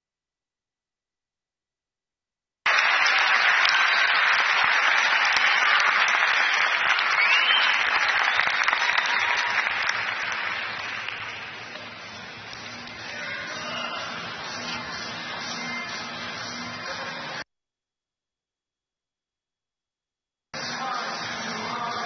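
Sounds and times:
crowd applauding: 2.7 - 14.2
rising whistle: 6.4 - 9.5.

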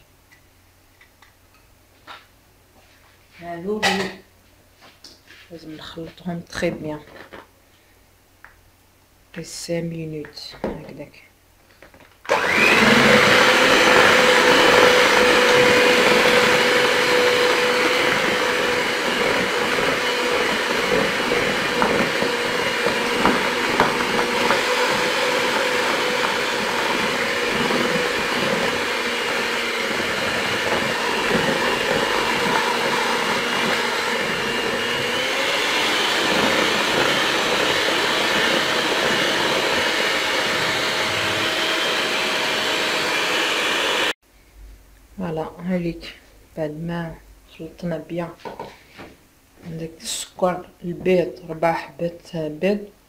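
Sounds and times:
electric hand mixer whisking batter: 12.3 - 44.2.

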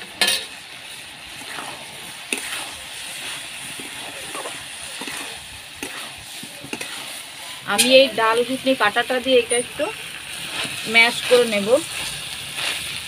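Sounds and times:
soft frying sizzle: 0.0 - 13.0
spatula scraping vegetables: 0.2 - 13.0
spatula clacking on pan: 2.3 - 2.7, 3.8 - 7.0.

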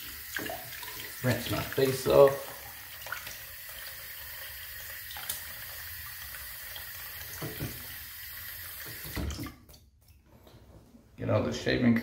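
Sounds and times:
small water splashes: 0.0 - 5.7
sink tap running: 0.0 - 9.4.

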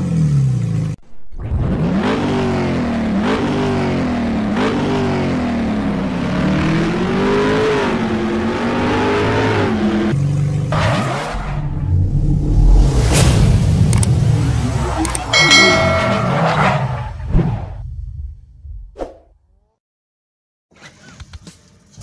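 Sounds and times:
car engine revving: 0.7 - 14.9.

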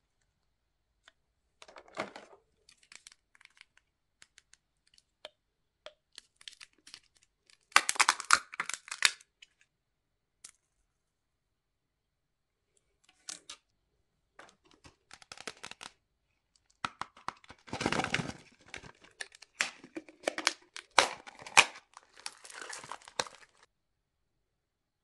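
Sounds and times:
plastic packaging crinkling: 2.6 - 5.0, 6.1 - 9.3, 14.6 - 15.9, 16.8 - 23.7.

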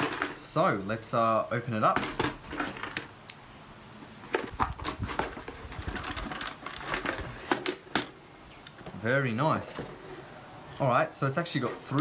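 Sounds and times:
cardboard box rustling and scraping: 4.2 - 7.7, 11.5 - 12.0.

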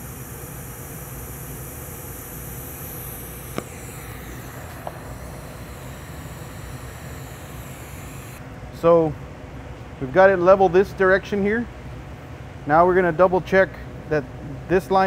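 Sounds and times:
welding arc hiss: 0.0 - 8.4
low steady hum: 0.0 - 14.7
click: 3.5 - 3.7.

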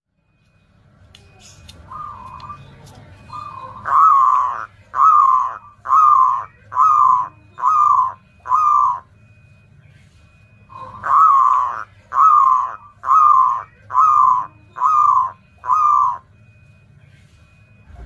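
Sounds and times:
dove cooing call: 1.8 - 9.5, 10.4 - 16.6.

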